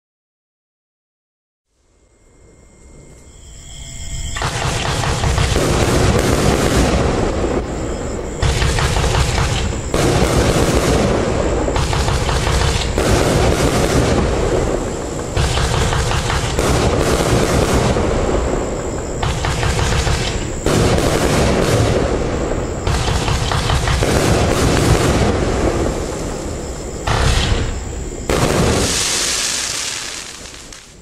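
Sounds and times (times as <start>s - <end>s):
fireworks aerial bursts: 4.2s - 31.0s
fireworks launch thumps: 27.0s - 31.0s.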